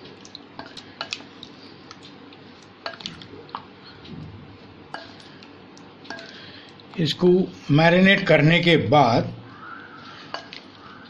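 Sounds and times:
wet squishing of stirring: 0:00.0 - 0:07.1, 0:09.7 - 0:11.0.

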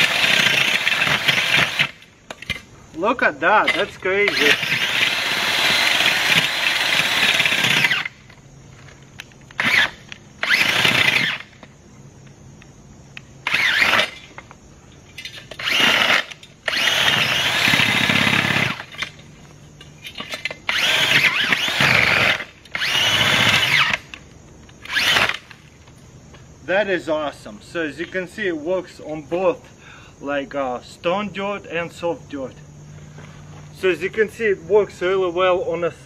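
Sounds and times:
earth auger motor boring: 0:00.0 - 0:02.6, 0:03.6 - 0:08.2, 0:09.5 - 0:11.6, 0:13.4 - 0:14.2, 0:15.5 - 0:19.2, 0:20.2 - 0:24.1, 0:24.8 - 0:25.5.

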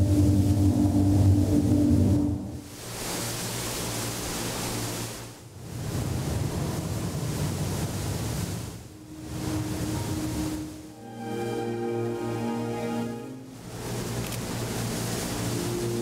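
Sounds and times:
low hum: 0:00.0 - 0:04.8, 0:08.7 - 0:16.0
swelling surf-like noise: 0:00.0 - 0:16.0.

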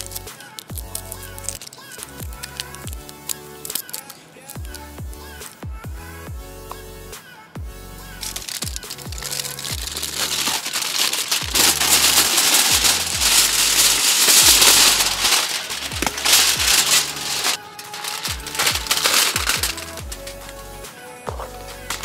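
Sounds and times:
aluminium foil crinkling: 0:00.0 - 0:04.9, 0:08.2 - 0:22.0
electronic music with kick drum: 0:02.1 - 0:03.3, 0:04.6 - 0:10.0, 0:18.2 - 0:22.0.

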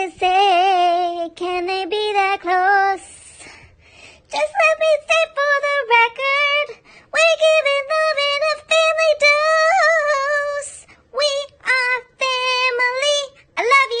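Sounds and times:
synthetic singing voice: 0:04.3 - 0:14.0.

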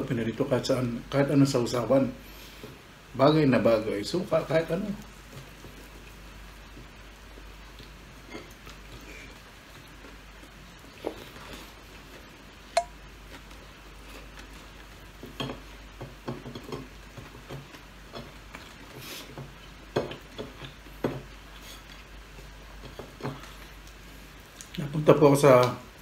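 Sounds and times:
crisp crackles and clicks: 0:04.9 - 0:15.1, 0:16.8 - 0:24.9
chewing and crunching: 0:16.4 - 0:24.8.

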